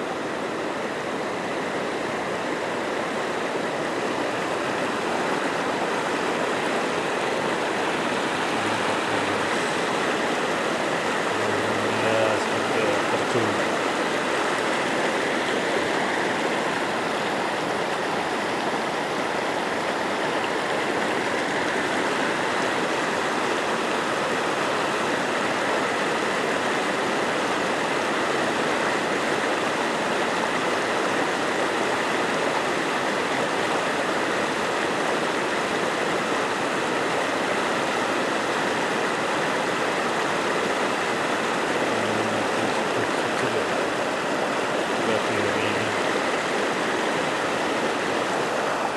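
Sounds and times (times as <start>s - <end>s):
river rushing over rocks: 0.0s - 48.9s.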